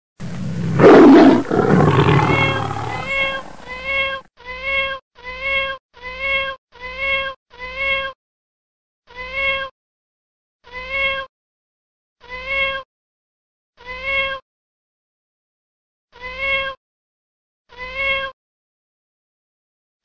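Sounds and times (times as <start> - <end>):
tiger roar: 0.2 - 3.7
kitten meowing: 2.2 - 4.2.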